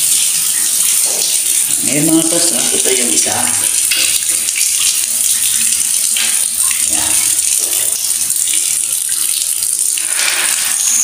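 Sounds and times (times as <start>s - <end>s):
water running in a tiled bathroom: 0.0s - 11.0s.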